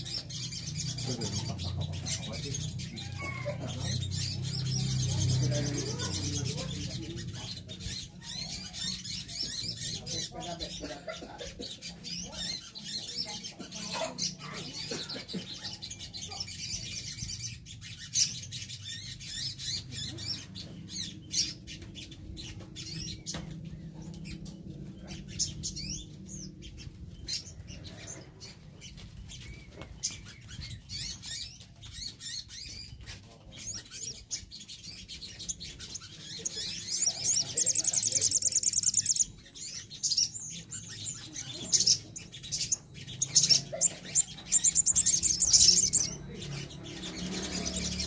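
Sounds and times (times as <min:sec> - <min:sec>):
birds chirping and twittering: 0:00.0 - 0:48.0.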